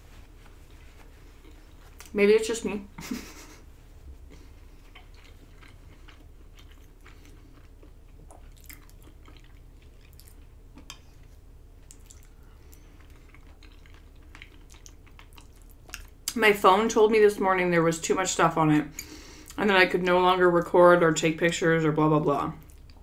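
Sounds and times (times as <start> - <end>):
chewing pasta: 0.5 - 2.2, 4.3 - 16.4, 22.6 - 23.0.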